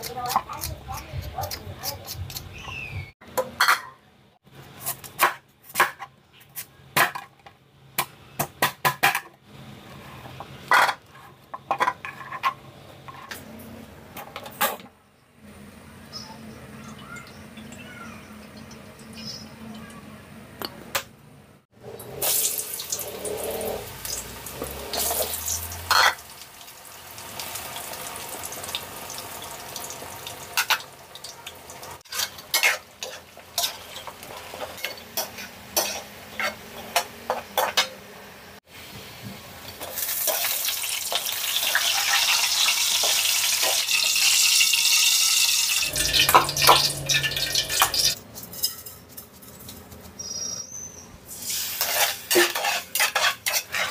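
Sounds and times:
food sizzling in hot oil: 21.9s - 37.8s, 38.7s - 48.8s, 51.3s - 53.9s.

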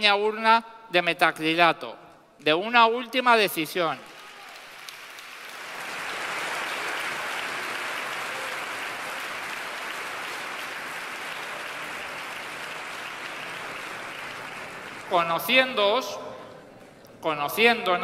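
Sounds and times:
audience applauding: 4.0s - 15.6s.

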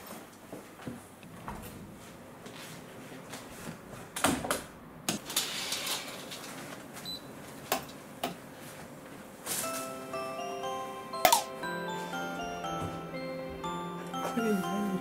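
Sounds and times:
clicks and knocks in room: 0.0s - 8.4s.

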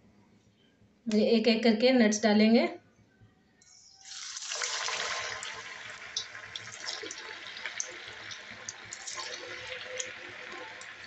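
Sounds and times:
food sizzling in hot oil: 4.0s - 11.0s
oil popping: 4.1s - 11.0s.

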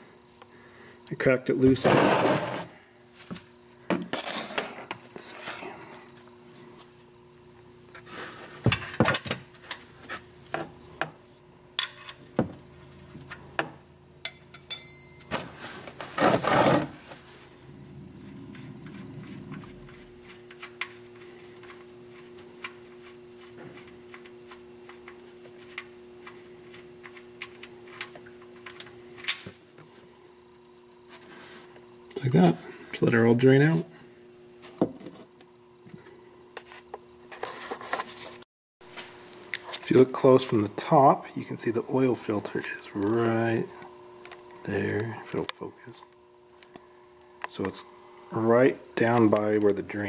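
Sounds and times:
faint steady hum: 0.0s - 50.0s.

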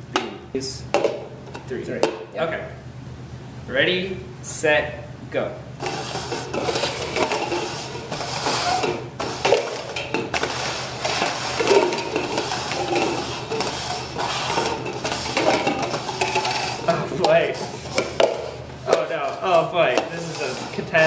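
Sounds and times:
plastic cups knocking together: 0.9s - 2.3s, 5.8s - 21.0s
plastic cups scraping on wooden table: 5.8s - 21.0s.

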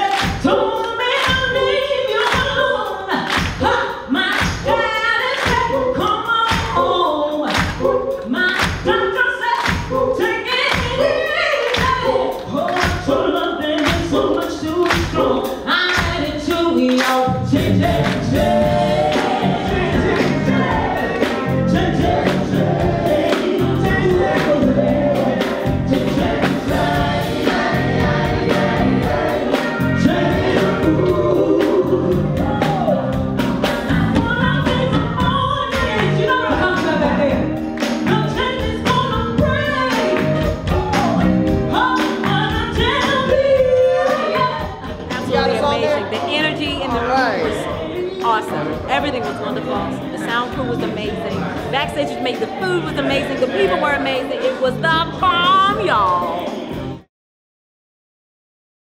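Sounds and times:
steady drum beat: 0.0s - 57.0s
group singing soul vocals: 0.0s - 57.1s.

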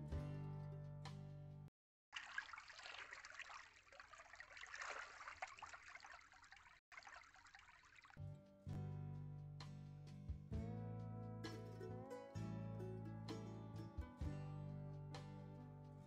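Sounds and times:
stream trickling: 2.1s - 8.3s
guitar music: 8.4s - 16.0s.

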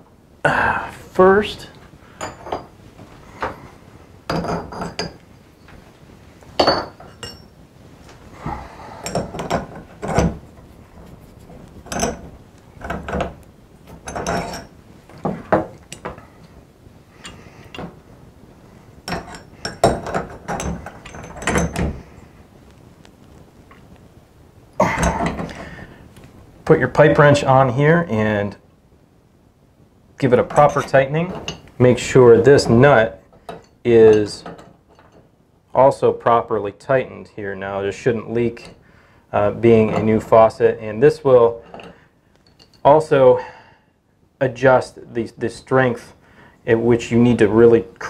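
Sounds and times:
metallic clinks and scrapes: 6.6s - 7.6s, 13.9s - 16.6s, 19.1s - 22.2s, 30.5s - 35.3s, 41.5s - 43.1s.

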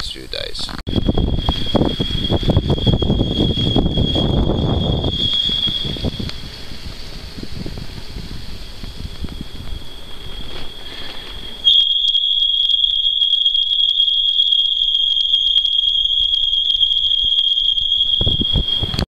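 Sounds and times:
steady high-pitched tone: 0.4s - 19.0s
wind and road rumble: 0.5s - 11.6s.

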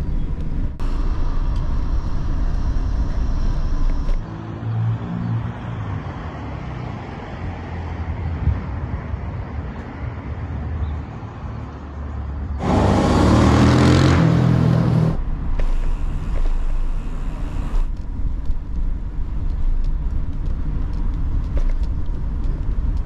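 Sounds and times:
traffic rumble: 0.0s - 23.0s
loud vehicle passing: 12.3s - 17.9s
hiss of passing traffic: 12.3s - 18.0s.

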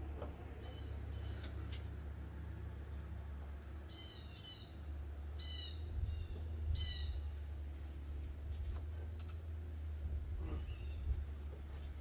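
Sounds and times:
small bird chirping: 0.6s - 1.5s, 3.9s - 7.4s.

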